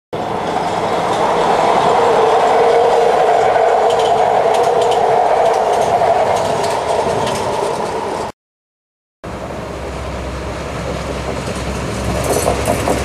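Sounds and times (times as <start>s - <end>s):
electric train running past: 0.2s - 8.3s, 9.3s - 13.0s
wheels clicking over rail joints: 2.6s - 8.3s, 9.7s - 13.0s.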